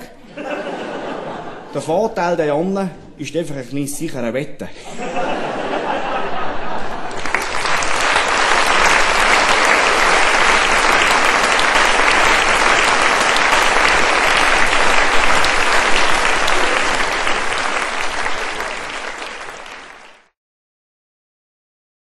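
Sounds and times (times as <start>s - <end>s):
audience applauding: 5.4s - 20.4s.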